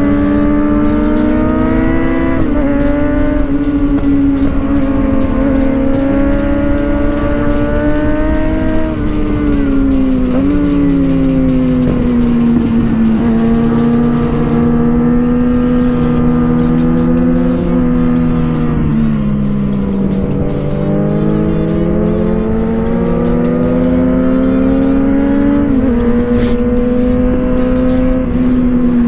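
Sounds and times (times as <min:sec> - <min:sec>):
motorcycle engine accelerating: 0:00.0 - 0:29.0.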